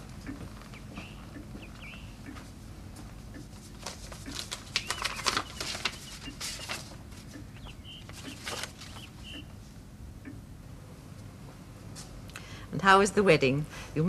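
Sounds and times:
clock ticking: 0.2 - 2.4, 3.3 - 3.6
paper rustling and crackling: 3.5 - 9.3.

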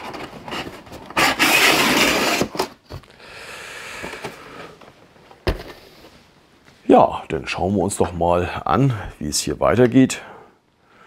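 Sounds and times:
cardboard box scraping: 0.0 - 2.8
box thump: 5.4 - 5.8.

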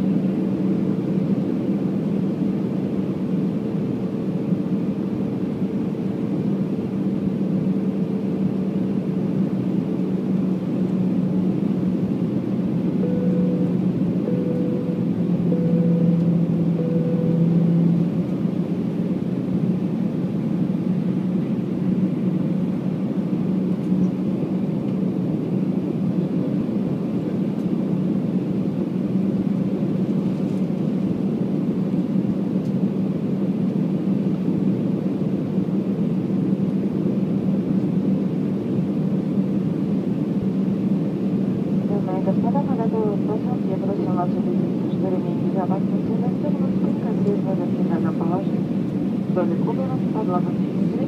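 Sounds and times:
jet engine cabin drone: 0.0 - 51.0
low hum: 9.9 - 24.9.

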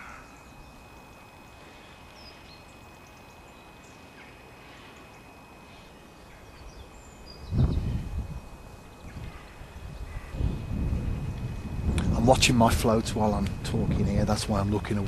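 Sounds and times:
faint high bird chirps: 0.0 - 10.4
thin steady high whine: 0.0 - 15.0.

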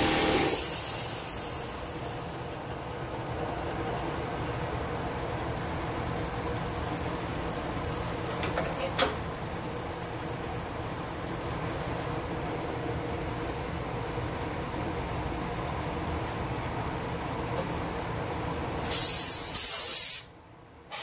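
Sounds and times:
high whine of end mill cutting metal: 0.0 - 0.7
milling machine spindle running: 0.0 - 0.7.

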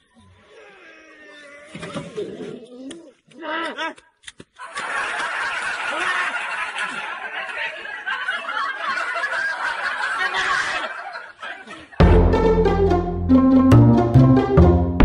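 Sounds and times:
people laughing and snickering: 4.6 - 12.3.

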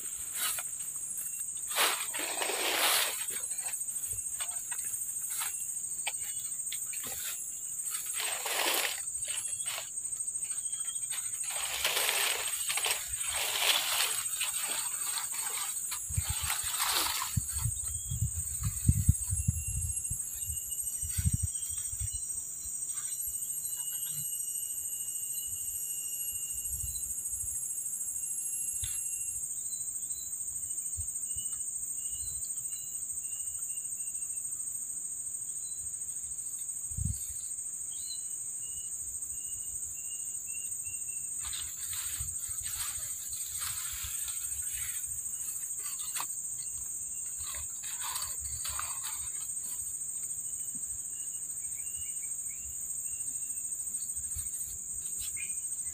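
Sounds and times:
rustling in grass: 0.0 - 22.1, 41.3 - 50.3
insects droning: 0.0 - 55.9.

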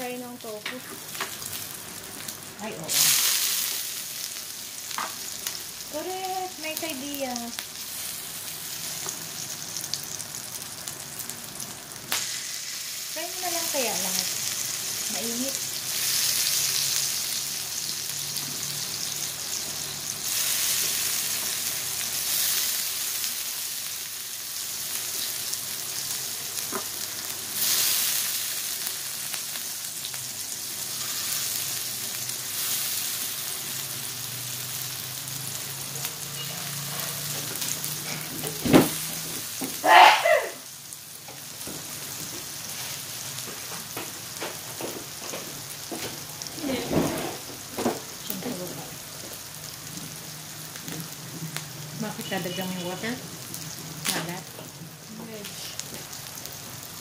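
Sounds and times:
food sizzling in oil: 0.0 - 57.0.

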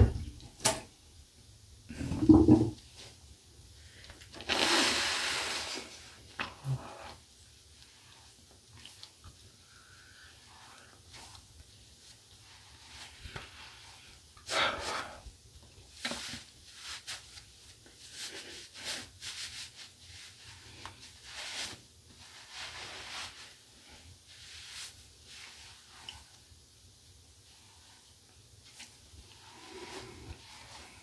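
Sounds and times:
towel rubbing over skin: 16.0 - 26.4, 27.4 - 31.0.

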